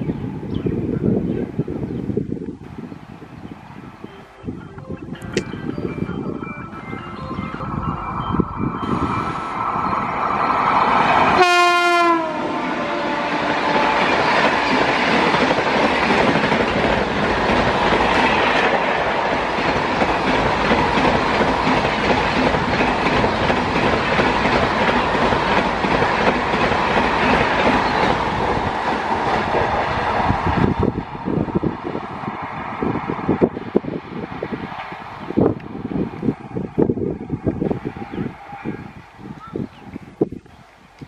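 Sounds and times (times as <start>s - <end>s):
train wheels roaring: 5.5s - 40.3s
train horn: 11.3s - 14.9s
clickety-clack over rail joints: 13.4s - 31.0s.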